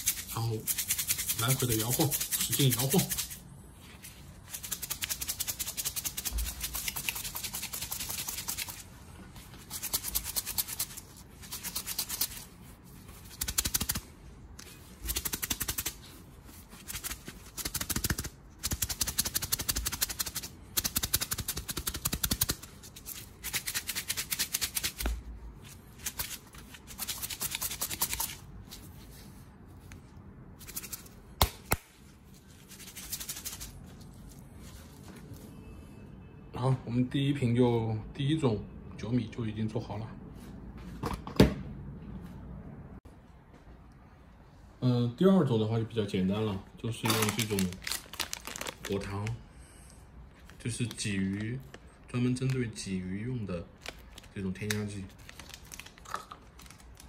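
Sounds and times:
grains rattling in shaken bottle: 0.0s - 3.4s, 4.4s - 8.8s, 9.6s - 12.5s, 47.0s - 49.3s.

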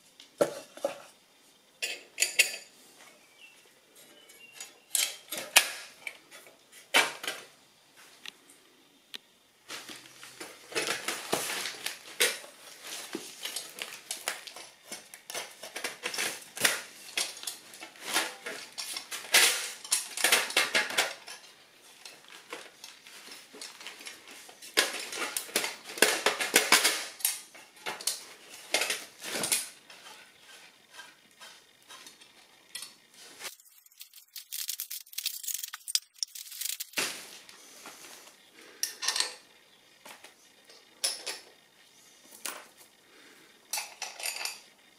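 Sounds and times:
wooden blocks clicking and knocking: 33.5s - 37.0s.

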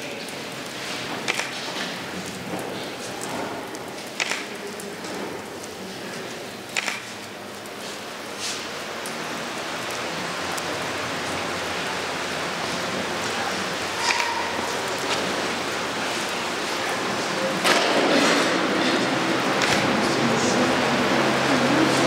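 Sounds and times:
matches crackling and hissing: 0.2s - 9.3s
sharp pops: 1.3s - 1.6s, 4.1s - 4.6s, 6.7s - 7.1s.

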